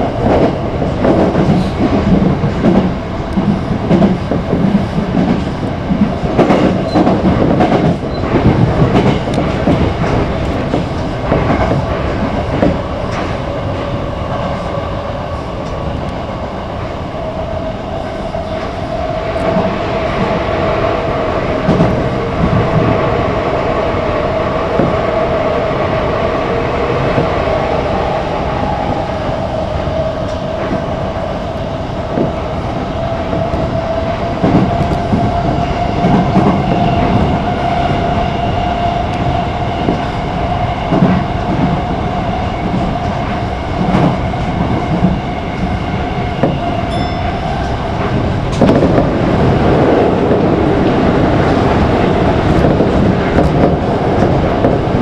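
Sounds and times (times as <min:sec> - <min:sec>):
train running noise with whine: 0:00.0 - 0:55.0.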